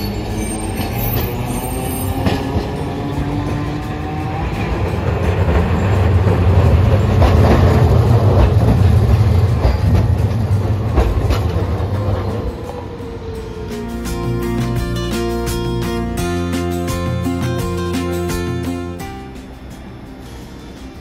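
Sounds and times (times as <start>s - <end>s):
streetcar rumbling past: 0.0s - 21.0s
wheels clacking over track joints: 0.1s - 15.3s.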